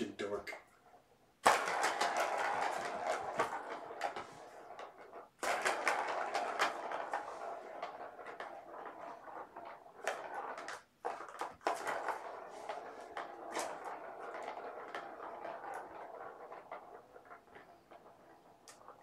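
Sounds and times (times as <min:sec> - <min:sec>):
ball rattling around plastic track: 0:00.0 - 0:19.0.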